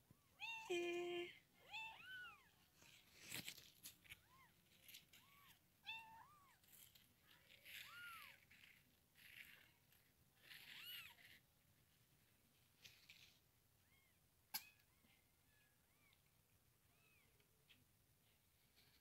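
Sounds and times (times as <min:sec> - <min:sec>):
rustle: 0:02.0 - 0:13.5.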